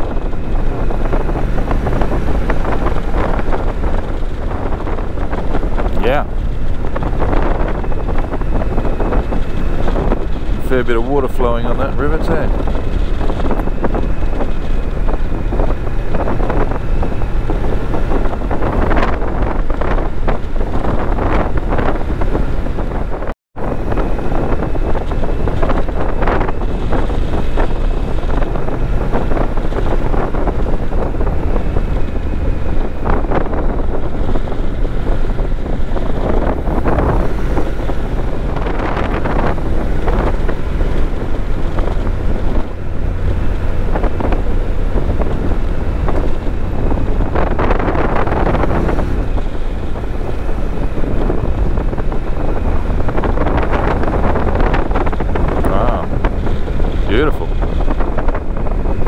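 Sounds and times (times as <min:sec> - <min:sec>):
motorcycle engine running: 0:00.0 - 0:59.0
road noise: 0:00.0 - 0:59.0
wind buffeting microphone: 0:00.0 - 0:59.0.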